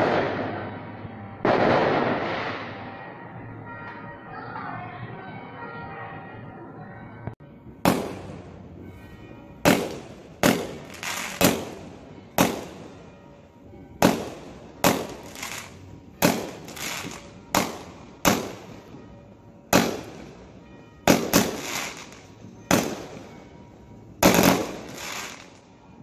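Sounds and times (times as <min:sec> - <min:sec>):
fireworks bangs: 0:00.0 - 0:03.3, 0:07.8 - 0:13.2, 0:14.0 - 0:25.8.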